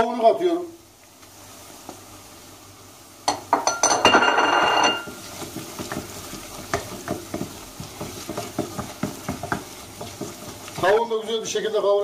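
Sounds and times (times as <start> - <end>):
chicken sizzling in hot oil: 0.0 - 12.0
stirring taps and scrapes: 3.2 - 12.0
wooden spoon knocking metal pot: 3.3 - 11.0.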